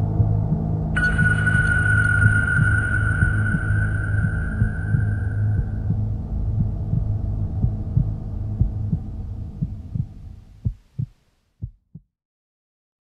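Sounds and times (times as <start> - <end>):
low hum: 0.0 - 10.4
heartbeat low thumps: 0.2 - 12.1.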